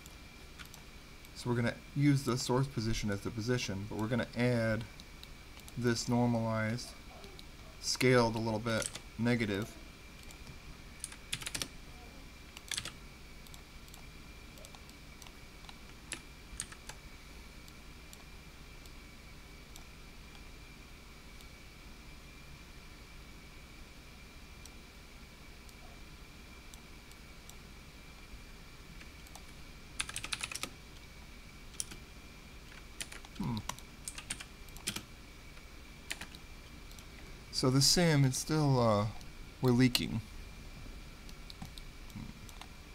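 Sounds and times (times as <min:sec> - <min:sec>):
faint high-pitched whine: 0:00.0 - 0:42.9
keyboard typing: 0:00.6 - 0:00.8, 0:08.4 - 0:09.6, 0:10.2 - 0:11.7, 0:12.6 - 0:17.0, 0:29.2 - 0:30.8, 0:31.7 - 0:32.0, 0:32.7 - 0:35.1, 0:36.1 - 0:37.1.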